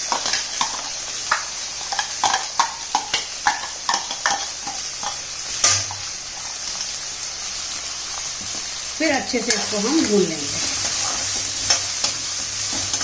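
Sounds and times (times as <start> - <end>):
utensil clanking on pan: 0.0 - 6.0
onion sizzling in hot oil: 0.0 - 13.0.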